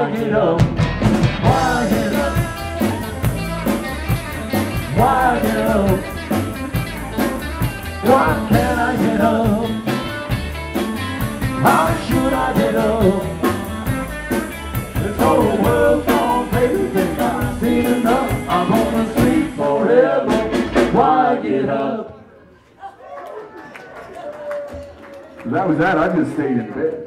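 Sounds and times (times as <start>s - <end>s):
man singing lead vocal: 0.0s - 0.8s, 1.4s - 3.8s, 4.4s - 6.6s, 7.9s - 10.1s, 11.4s - 13.7s, 14.8s - 22.2s
live rock band playing: 0.1s - 19.7s, 20.3s - 21.2s.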